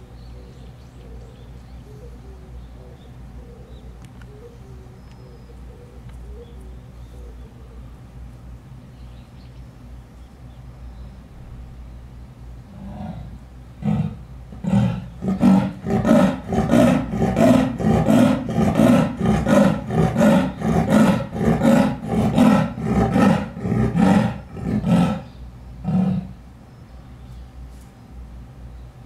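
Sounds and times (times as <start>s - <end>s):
leopard roaring hoarse grunts: 12.7s - 26.4s.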